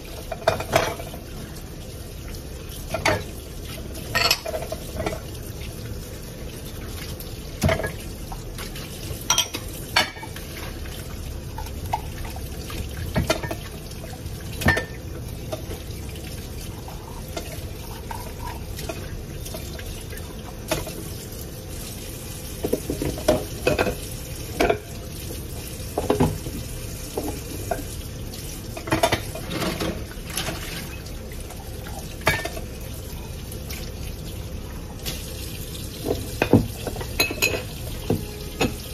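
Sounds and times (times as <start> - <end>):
dishes clinking: 0.3 - 1.2, 4.1 - 5.2, 9.2 - 10.4, 32.2 - 32.7, 36.1 - 38.9
tap running into sink: 36.0 - 38.8.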